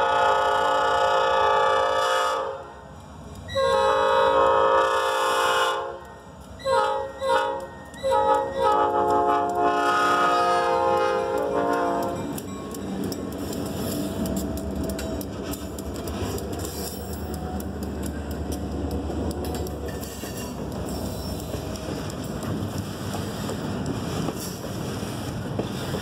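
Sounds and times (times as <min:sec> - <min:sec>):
locomotive air horn: 0:00.0 - 0:02.7, 0:03.5 - 0:06.0, 0:06.6 - 0:12.3
freight train rumbling past: 0:00.0 - 0:26.0.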